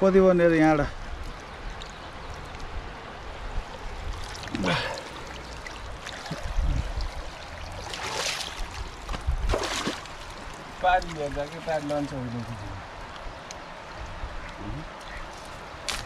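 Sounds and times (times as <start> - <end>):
water splashing: 1.2 - 13.1
river water rushing: 1.2 - 14.1.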